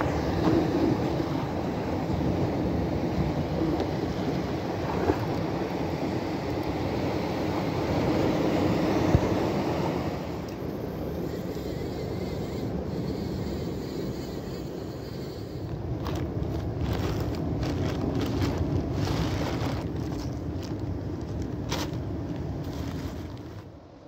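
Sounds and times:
wind on microphone: 0.0 - 10.4.

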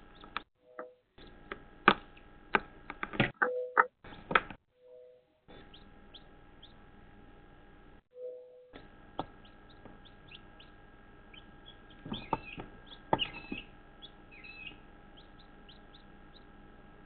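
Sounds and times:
chicks peeping: 5.5 - 6.8, 8.8 - 16.6
sharp knocks: 12.0 - 13.7.

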